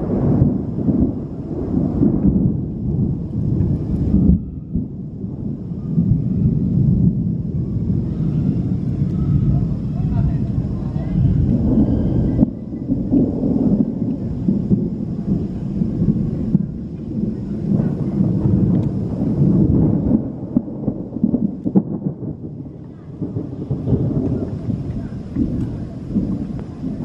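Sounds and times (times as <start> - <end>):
rolling thunder: 0.0 - 27.0.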